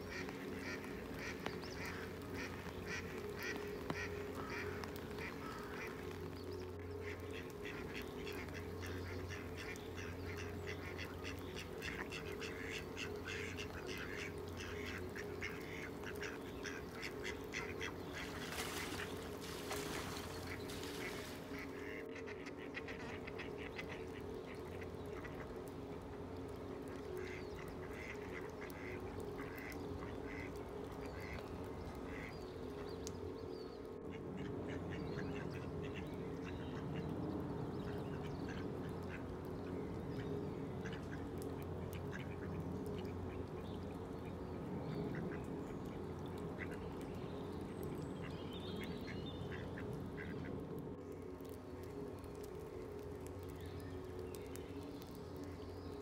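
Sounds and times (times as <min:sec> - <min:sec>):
mallard ducks quacking: 0:00.1 - 0:06.0, 0:06.8 - 0:25.5, 0:27.1 - 0:31.4, 0:32.1 - 0:32.8, 0:37.8 - 0:39.3, 0:40.8 - 0:43.8, 0:48.7 - 0:50.5.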